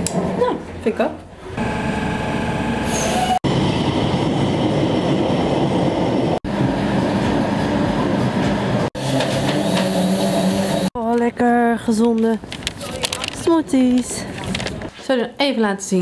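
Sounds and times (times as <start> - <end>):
metro train running on rails: 1.6 - 8.9.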